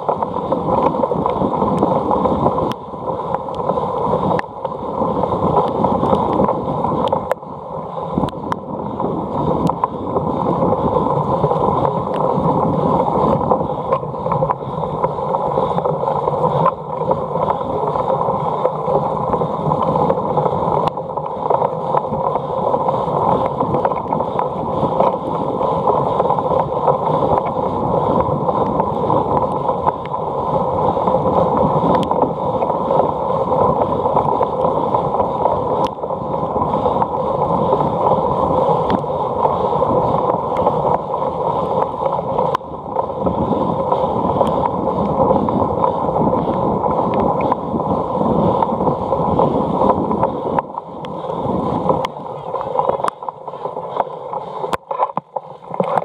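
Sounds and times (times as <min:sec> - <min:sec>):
wind noise on microphone: 0:00.0 - 0:56.0.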